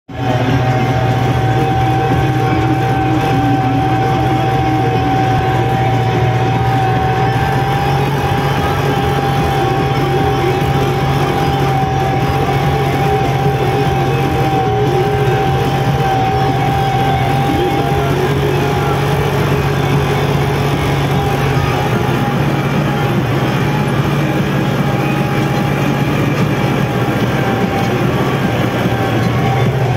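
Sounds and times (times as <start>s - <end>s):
high whine: 0.1s - 29.9s
tractor engine running: 0.1s - 29.9s.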